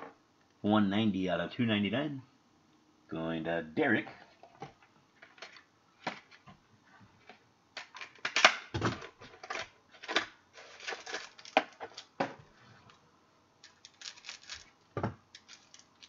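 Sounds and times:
cards and wrappers crinkling: 9.4 - 12.2, 13.6 - 16.0.

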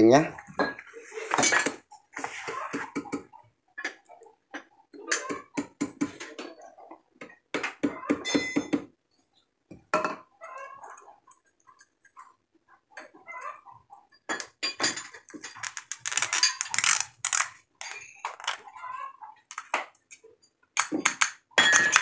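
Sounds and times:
metal tools clinking: 14.3 - 18.6.

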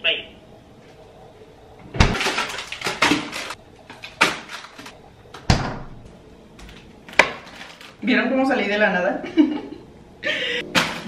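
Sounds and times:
refrigerator door thump: 1.9 - 2.3, 5.4 - 6.0
plastic bag rustling: 2.1 - 5.0, 6.7 - 8.0.

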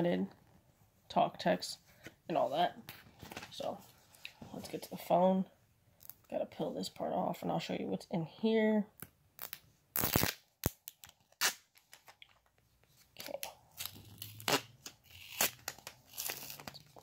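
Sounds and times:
paper sticker ripping: 9.4 - 11.6, 13.8 - 16.9.

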